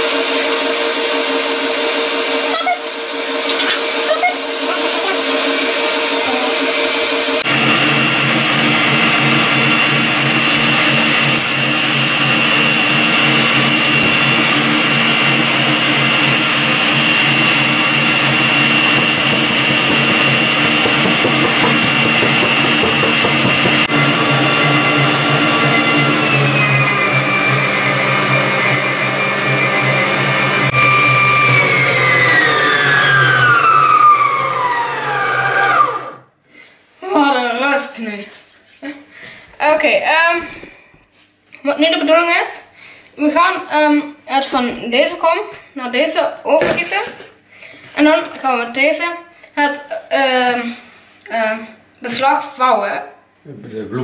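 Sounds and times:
stand mixer motor whine: 0.0s - 36.3s.

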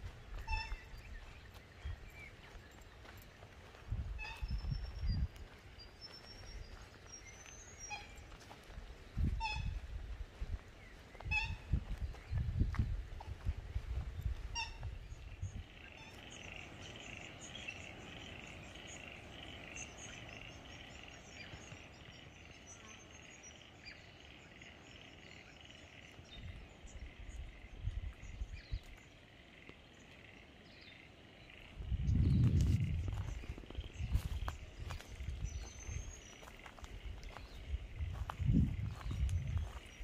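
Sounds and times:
frogs trilling chorus: 14.6s - 32.0s, 32.8s - 40.0s
low microphone rumble: 31.8s - 36.1s, 37.0s - 40.0s.

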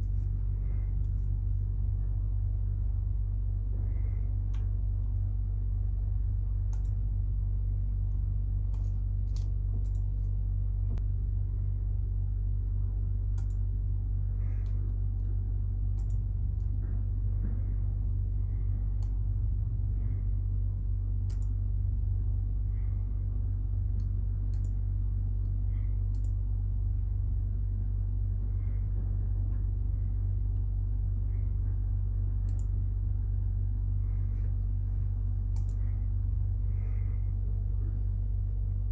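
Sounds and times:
steady low rumble: 0.0s - 38.9s
computer mouse clicks: 6.7s - 7.0s, 8.7s - 10.3s, 13.3s - 13.6s, 15.9s - 16.8s, 21.2s - 21.6s, 23.9s - 24.8s, 26.1s - 26.4s, 32.4s - 32.8s, 35.5s - 35.9s.

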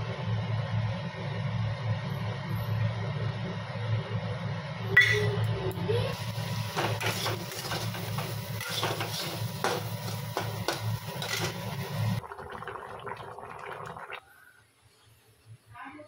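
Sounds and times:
metal spatula scraping a pan: 7.0s - 10.2s, 11.2s - 11.6s.

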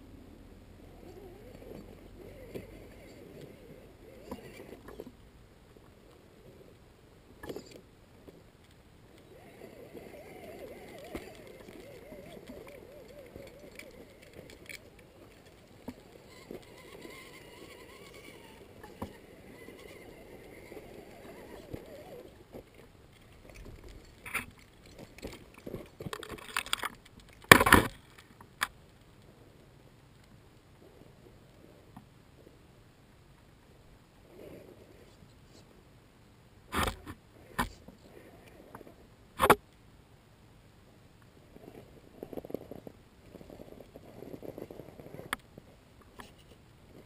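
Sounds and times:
rc car electric motor whining: 15.4s - 22.3s.

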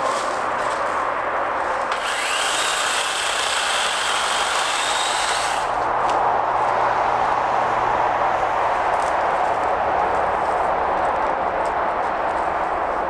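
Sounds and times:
electric chainsaw whining: 1.8s - 5.8s
steady rushing background noise: 3.8s - 13.0s.

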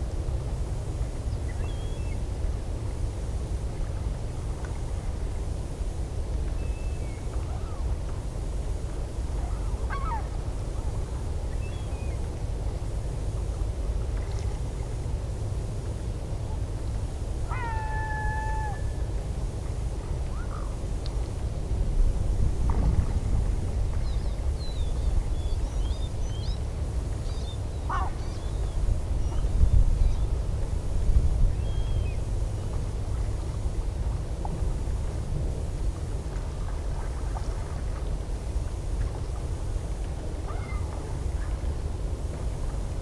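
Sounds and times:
wind rumble on microphone: 0.0s - 43.0s
gulls calling: 9.4s - 10.3s, 17.5s - 19.0s, 27.4s - 29.4s.

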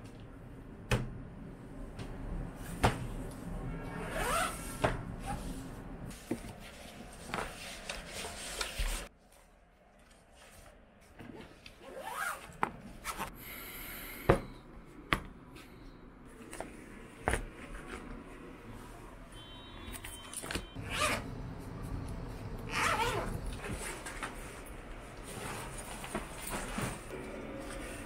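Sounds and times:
fabric rubbing and rustling: 2.5s - 9.5s, 20.8s - 28.0s.

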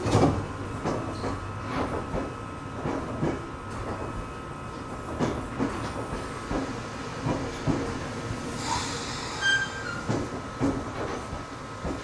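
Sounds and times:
train running noise: 0.0s - 12.0s
high-pitched wheel squeal: 8.7s - 10.1s.

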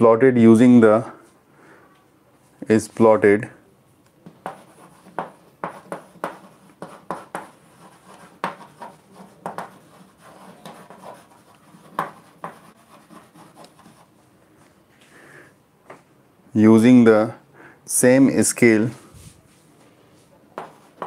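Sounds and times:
chalk scratching on chalkboard: 4.3s - 14.2s, 20.6s - 21.0s.

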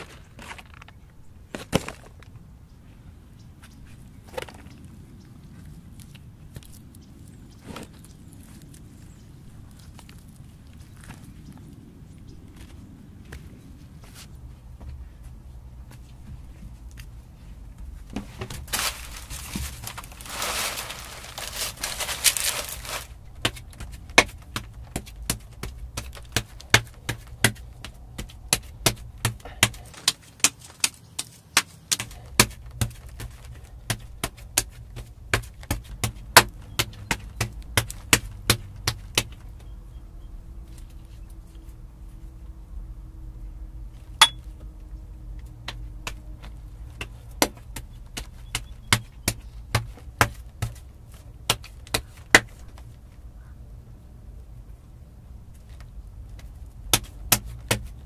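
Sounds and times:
rustling: 16.0s - 27.8s.

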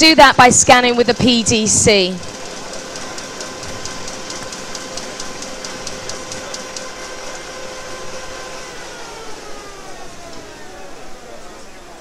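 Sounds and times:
rapid regular ticking: 0.0s - 7.4s
printing press humming: 0.0s - 12.0s.

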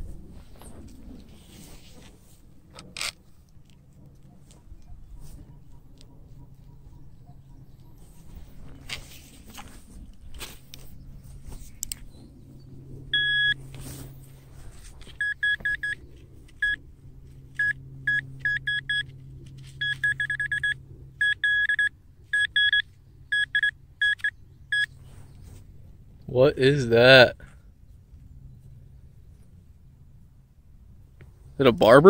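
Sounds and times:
scraping and clicking in dirt: 0.5s - 6.2s, 8.6s - 12.2s, 18.3s - 20.1s
metal detector beeping: 13.1s - 13.6s, 15.1s - 16.8s, 17.6s - 25.0s.

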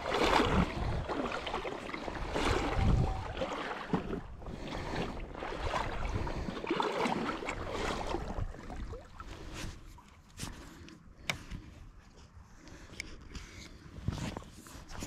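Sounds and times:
wind rumble on microphone: 0.0s - 6.6s, 7.2s - 10.0s
small splashes: 0.0s - 9.8s
river water sloshing: 0.0s - 10.9s.

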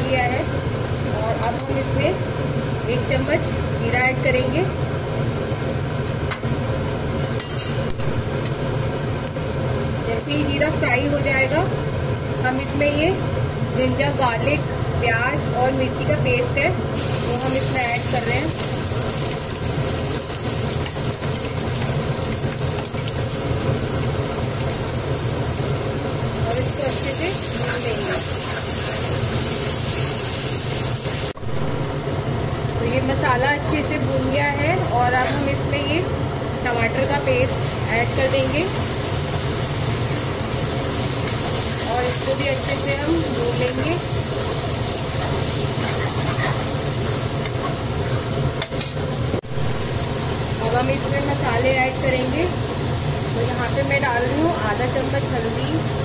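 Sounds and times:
masala sizzling in oil: 0.0s - 56.0s
paste sizzling in hot oil: 16.9s - 31.4s, 37.7s - 48.7s
metal ladle scraping pan: 45.2s - 46.8s.

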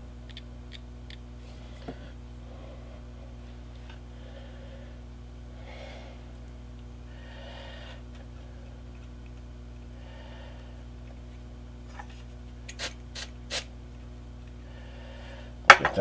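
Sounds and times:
low electrical hum: 0.0s - 16.0s
soft breaths: 1.4s - 9.1s, 9.8s - 11.3s, 14.6s - 15.6s.

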